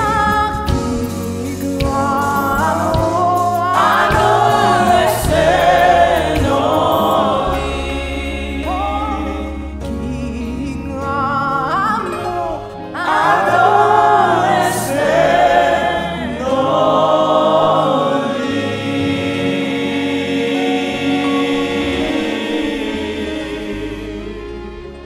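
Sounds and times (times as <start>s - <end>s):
woman singing lead: 0.0s - 4.8s
choir singing: 1.5s - 9.8s, 12.9s - 25.0s
sustained accompaniment: 2.3s - 11.0s, 12.7s - 25.0s.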